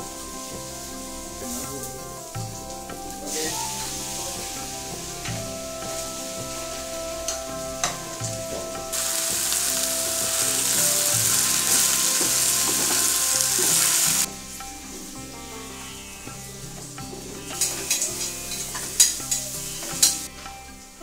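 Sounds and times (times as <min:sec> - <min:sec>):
food sizzling in hot oil: 0:00.0 - 0:07.0, 0:08.9 - 0:16.4
soft background music: 0:00.0 - 0:21.0.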